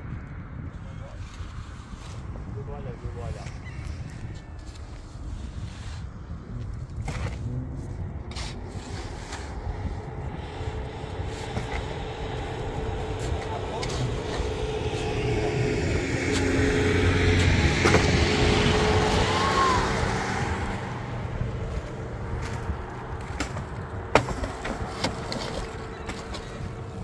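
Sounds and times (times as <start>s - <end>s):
road vehicle passing: 7.3s - 27.0s.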